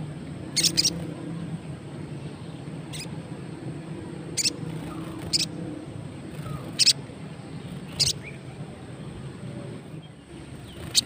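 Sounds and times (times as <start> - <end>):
steady low hum: 0.0 - 11.0
bird chips: 10.6 - 11.0.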